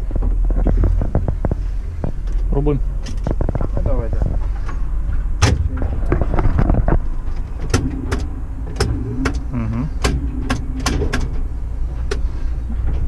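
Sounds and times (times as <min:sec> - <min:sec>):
electrical contactors clicking: 0:00.0 - 0:13.0
low machine hum: 0:00.0 - 0:13.0
steady drone tone: 0:05.0 - 0:12.0.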